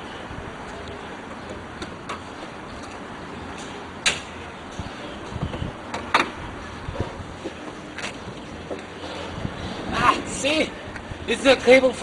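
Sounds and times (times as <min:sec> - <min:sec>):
car parts clicking and clunking: 0:00.7 - 0:09.3.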